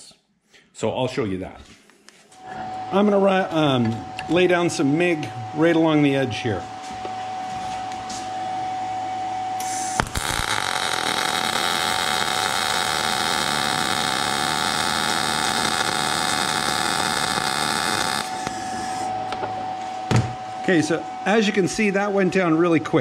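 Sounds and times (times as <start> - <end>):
welding arc crackling: 9.6 - 19.1.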